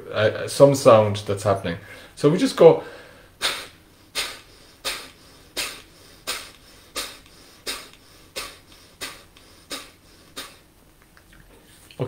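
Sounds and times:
man exhaling sharply through nose: 2.8 - 10.7.

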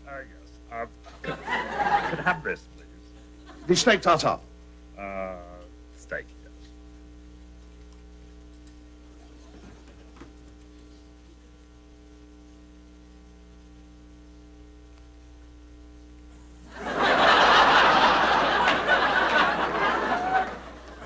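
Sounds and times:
steady mains hum: 0.0 - 21.0
studio audience laughing: 1.1 - 2.6, 3.4 - 3.8, 16.7 - 21.0.

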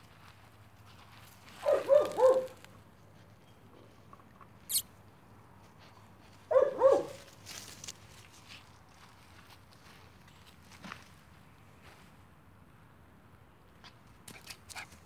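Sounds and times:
puppy yipping: 1.6 - 2.6, 6.5 - 7.2.

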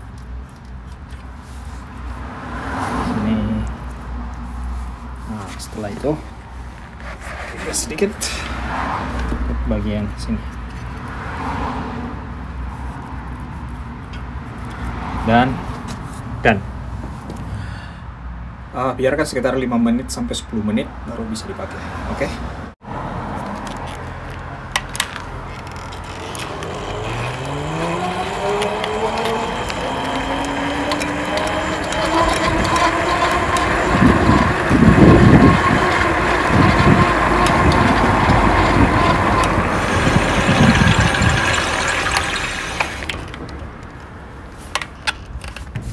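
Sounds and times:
electric bike motor whine: 25.6 - 43.4
wind buffeting microphone: 29.4 - 42.1.

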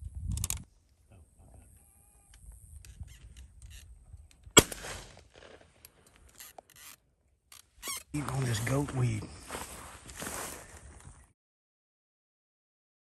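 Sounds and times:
shotgun shot with echo: 4.6 - 5.6.

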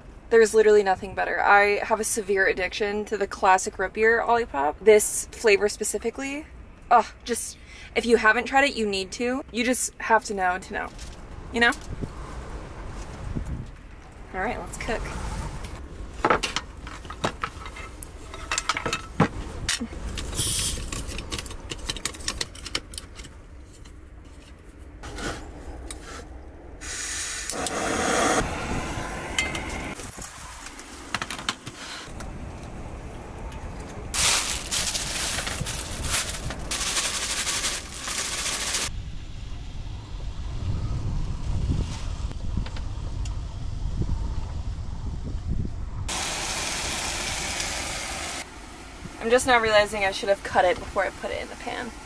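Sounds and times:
steady hissing: 25.8 - 32.1.

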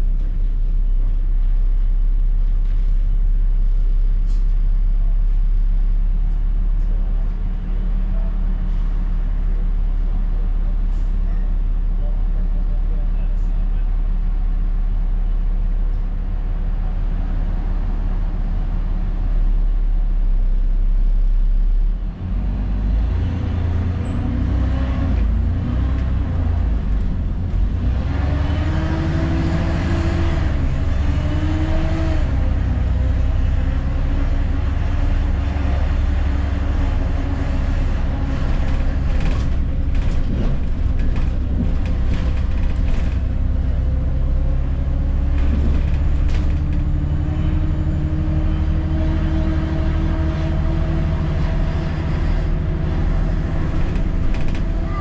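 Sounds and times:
bus engine rumbling: 0.0 - 55.0.

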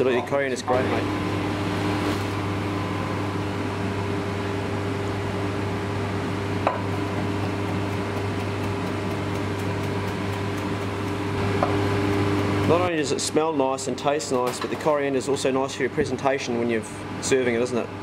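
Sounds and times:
kitchen machinery hum: 0.0 - 18.0
knife chopping on wooden board: 7.5 - 11.8.

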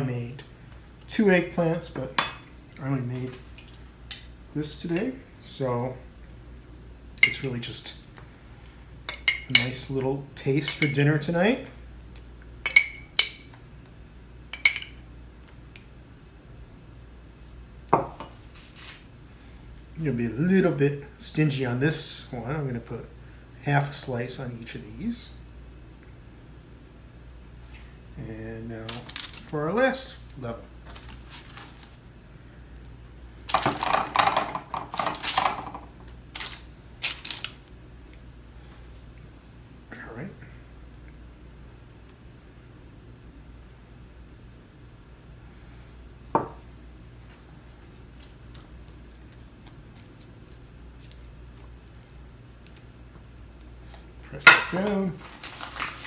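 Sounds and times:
parchment paper crinkling: 30.9 - 32.0, 36.4 - 37.6, 55.1 - 56.0
glass jar set down on counter: 46.4 - 46.6.

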